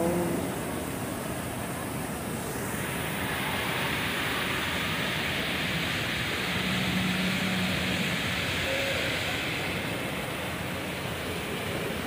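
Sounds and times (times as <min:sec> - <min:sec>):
water falling over small waterfall: 0:00.0 - 0:12.0.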